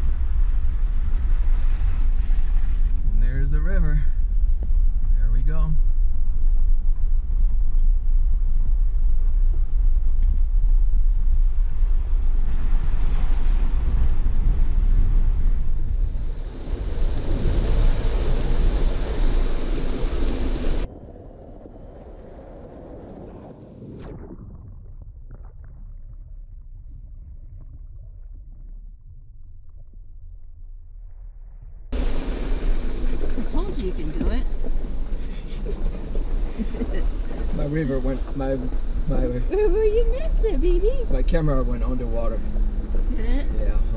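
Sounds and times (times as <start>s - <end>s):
muffled underwater river rumble: 0.0s - 43.9s
wind buffeting microphone: 0.0s - 43.9s
rushing splashing water: 12.1s - 20.9s, 32.0s - 43.9s
rushing surf-like hiss: 32.0s - 39.5s.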